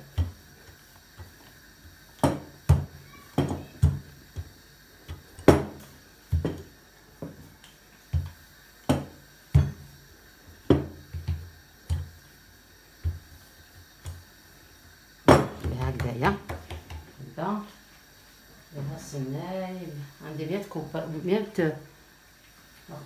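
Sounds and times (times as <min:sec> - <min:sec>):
rolling pin knocking on table: 0:05.1 - 0:07.4, 0:10.7 - 0:12.1, 0:15.3 - 0:17.0.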